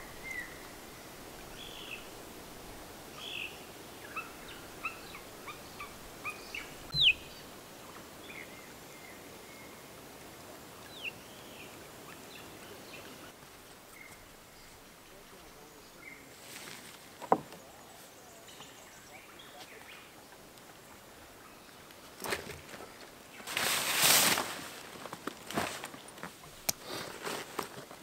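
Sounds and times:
birds chirping and whistling: 0.0 - 2.1, 3.2 - 7.4.

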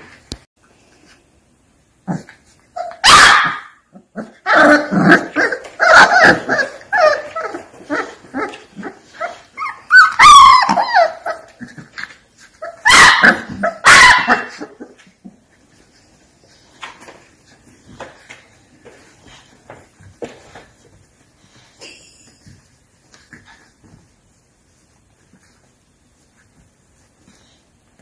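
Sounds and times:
puppies yipping and barking: 2.7 - 15.1.

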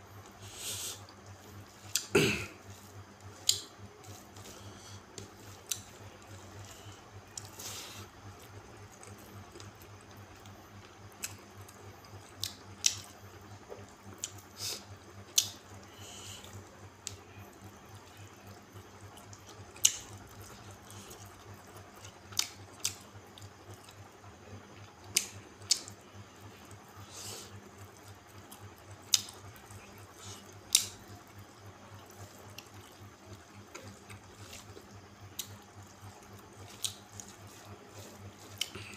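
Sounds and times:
low steady hum: 0.0 - 38.9
man chewing food: 0.1 - 38.9.

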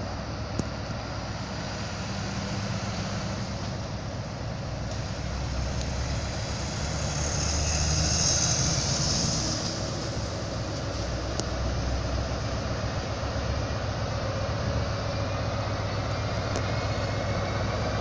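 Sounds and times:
locomotive engine drone: 0.0 - 18.0
high hiss: 4.8 - 11.8.

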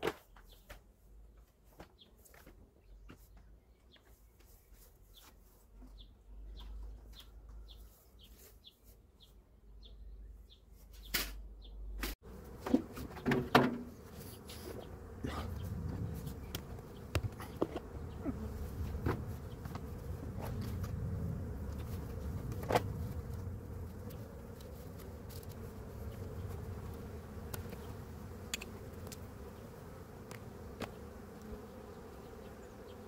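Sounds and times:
honeybees buzzing: 12.2 - 33.0.

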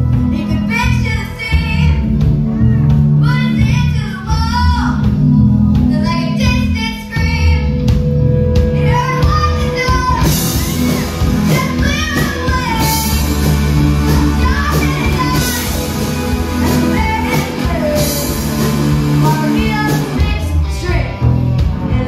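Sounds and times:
drum kit with cymbals: 7.2 - 22.0
electric guitar: 7.4 - 22.0
woman singing lead: 8.7 - 22.0.

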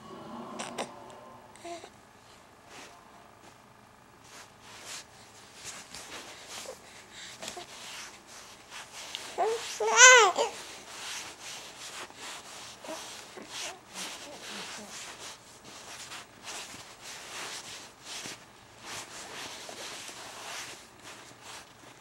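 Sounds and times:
baby cooing: 0.5 - 1.9, 9.4 - 10.6
rustling and rubbing: 4.2 - 22.0.

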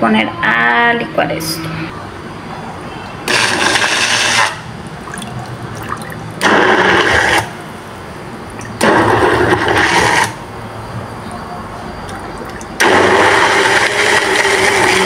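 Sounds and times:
immersion blender churning: 3.3 - 7.5, 8.8 - 10.4, 12.4 - 15.0.

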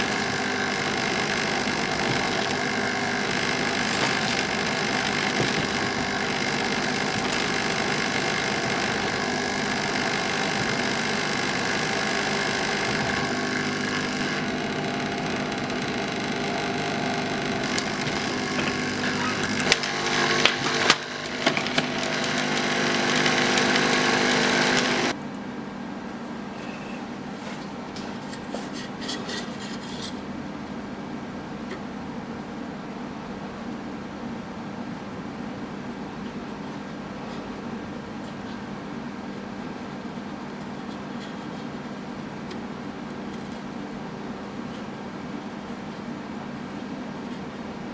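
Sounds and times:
hot air blower hissing: 0.0 - 25.2
steady hum: 0.0 - 25.3.

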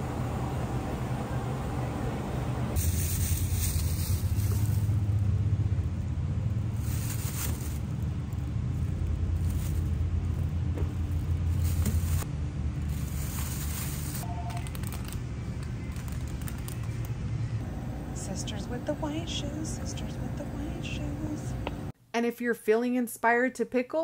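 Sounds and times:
low rumble: 0.0 - 14.2, 15.1 - 22.0
plastic bag crinkling: 2.8 - 5.0, 6.8 - 12.2, 12.9 - 17.1.

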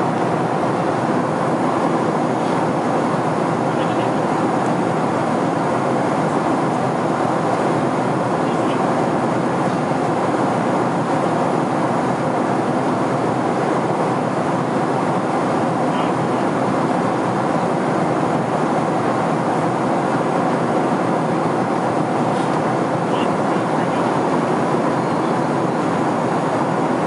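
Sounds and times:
airplane cabin noise: 0.0 - 27.0.

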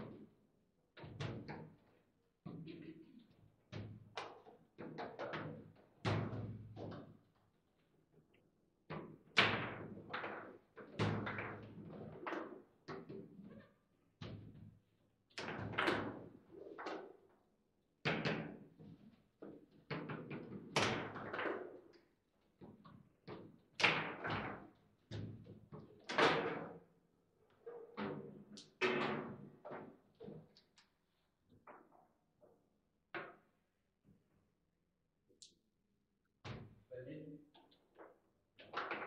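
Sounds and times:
table football knocks and clacks: 1.0 - 1.9, 2.5 - 7.3, 8.9 - 13.4, 15.3 - 17.2, 18.0 - 26.9.

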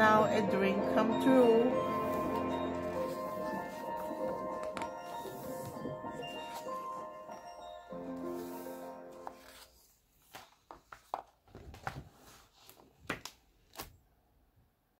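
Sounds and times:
background music: 0.0 - 9.8
book pages turning: 1.8 - 14.0.

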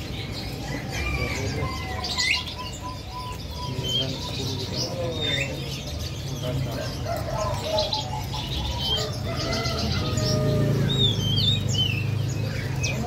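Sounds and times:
bird chirps: 0.0 - 13.0
doves cooing: 0.0 - 13.0.

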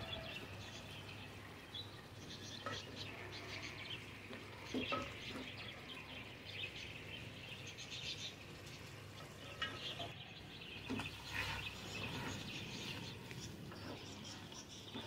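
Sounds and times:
spatula scraping a pot: 10.9 - 15.0.

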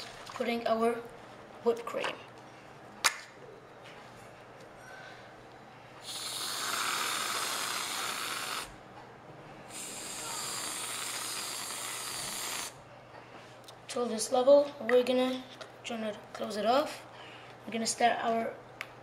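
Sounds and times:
aerosol whipped cream hissing: 6.0 - 8.7, 9.7 - 12.8.

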